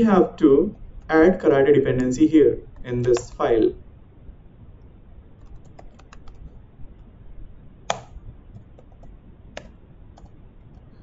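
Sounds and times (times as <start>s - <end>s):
keyboard key clicks: 7.9s - 10.3s.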